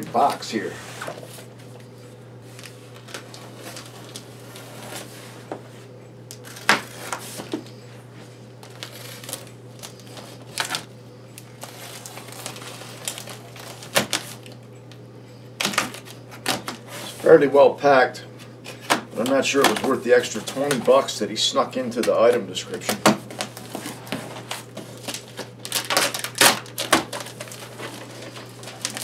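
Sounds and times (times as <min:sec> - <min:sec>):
low steady hum: 0:00.0 - 0:29.0
cardboard crackles and clicks: 0:02.5 - 0:05.1, 0:06.3 - 0:07.8, 0:08.6 - 0:14.6, 0:15.6 - 0:17.1, 0:18.7 - 0:21.1, 0:22.0 - 0:29.0
blade slitting packing tape: 0:24.5 - 0:29.0.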